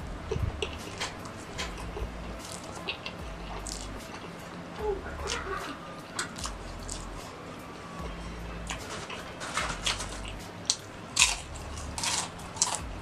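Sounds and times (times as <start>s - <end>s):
soft background music: 0.0s - 13.0s
potato chips crunching: 0.6s - 4.3s, 6.2s - 7.2s, 8.0s - 13.0s.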